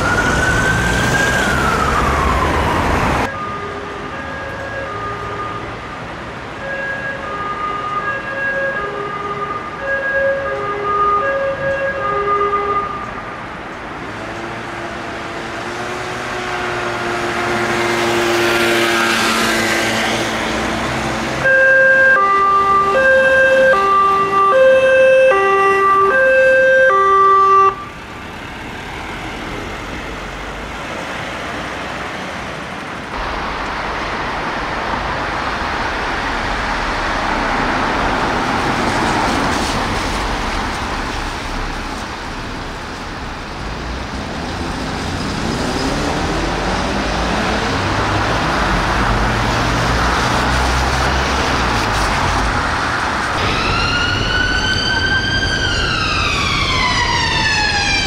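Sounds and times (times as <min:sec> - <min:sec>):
two-tone police siren: 0:00.0 - 0:13.1, 0:21.4 - 0:28.1, 0:53.3 - 0:58.0
passing road traffic: 0:00.0 - 0:58.0.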